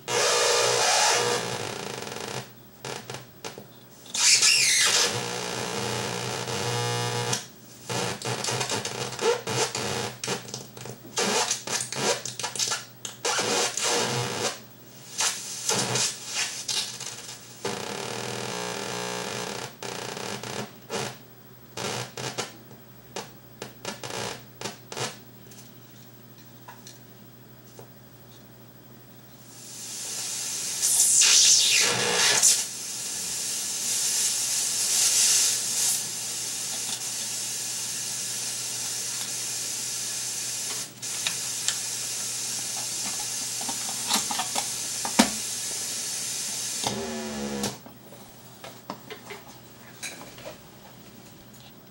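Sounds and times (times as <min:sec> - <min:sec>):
crackling electronic noise: 0:00.0 - 0:25.3, 0:30.8 - 0:32.7
loud hiss: 0:04.2 - 0:05.5, 0:15.0 - 0:16.7, 0:29.5 - 0:44.0.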